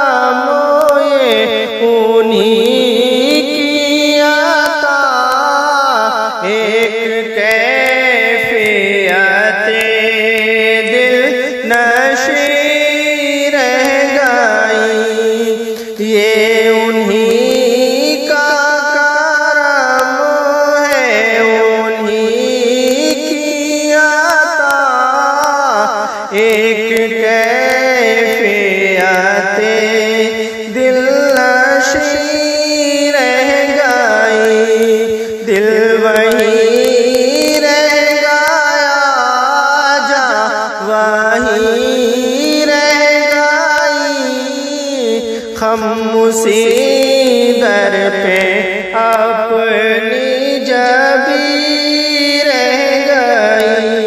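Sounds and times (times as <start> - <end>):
solo voice singing devotional poem: 0.0 - 54.0
singer breathing: 15.7 - 16.0, 35.1 - 35.5, 45.2 - 45.6.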